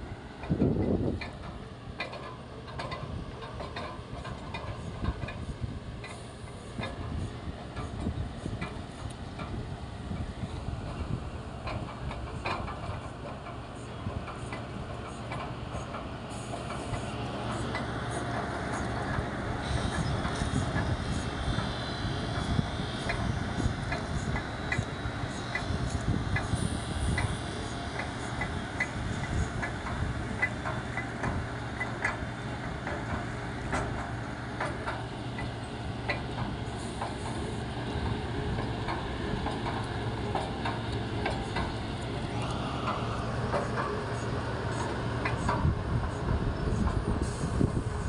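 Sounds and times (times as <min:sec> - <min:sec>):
drilling rig engine drone: 0:00.0 - 0:48.0
sharp clicks and knocks: 0:00.4 - 0:09.6, 0:11.6 - 0:20.9, 0:28.0 - 0:45.8.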